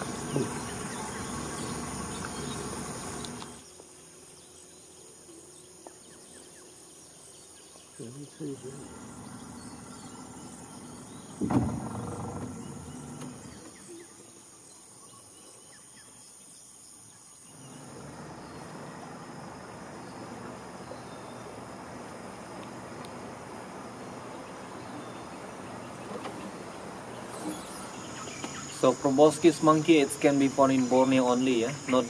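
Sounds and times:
boat motor running: 0.0 - 3.6, 8.8 - 13.8
insects droning: 0.0 - 32.0.

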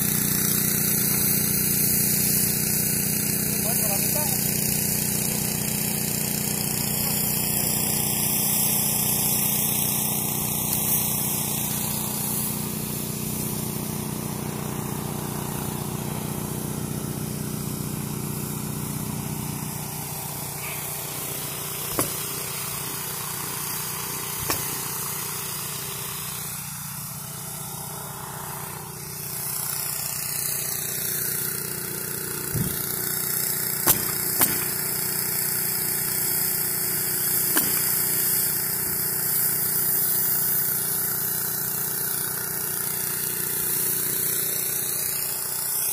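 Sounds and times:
motor droning: 0.0 - 39.8
pneumatic nailer shots: 0.0 - 45.9.

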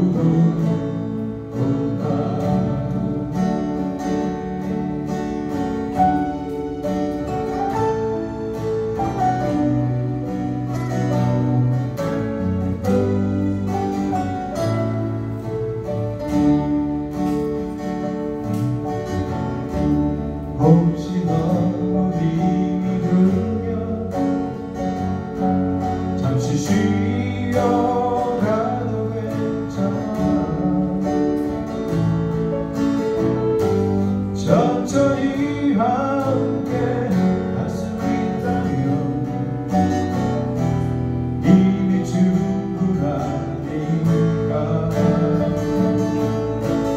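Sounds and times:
small live band playing: 0.0 - 46.9.

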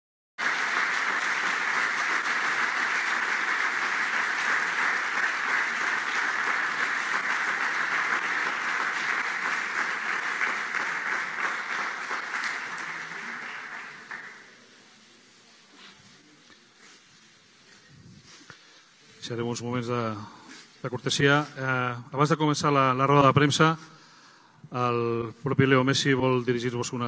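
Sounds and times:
audience applauding: 0.4 - 14.7.

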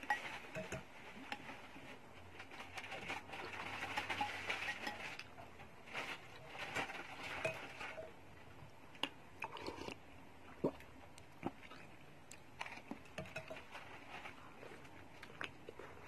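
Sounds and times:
spoon and fork scraping a bowl: 0.0 - 1.5, 3.5 - 5.3, 7.2 - 8.1, 13.1 - 14.1
person chewing: 9.0 - 10.0.

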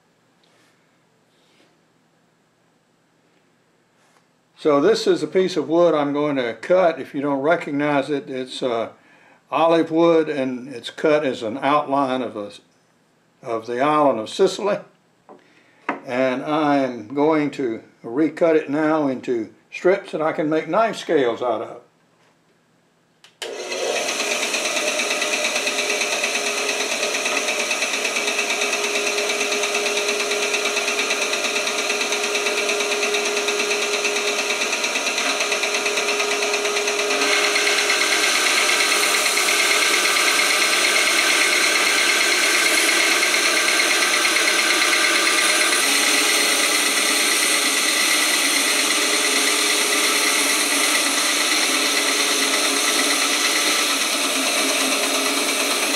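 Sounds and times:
bandsaw cutting wood: 23.4 - 55.9
bandsaw running: 23.4 - 55.9.

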